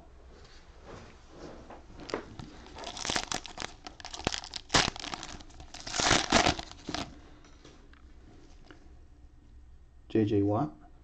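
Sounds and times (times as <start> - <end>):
cellophane crinkling and tearing: 2.0 - 7.2.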